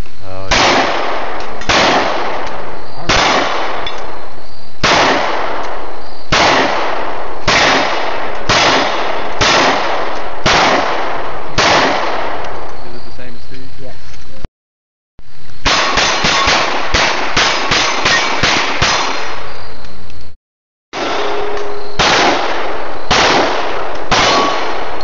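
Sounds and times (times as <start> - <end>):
pistol shots: 0.5 - 4.1, 4.8 - 12.7, 15.6 - 19.5, 21.0 - 25.0.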